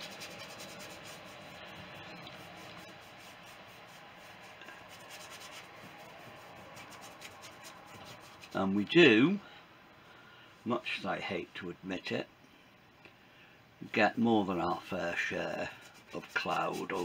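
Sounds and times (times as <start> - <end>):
paintbrush scrubbing on board: 0.0 - 8.7, 14.4 - 17.0.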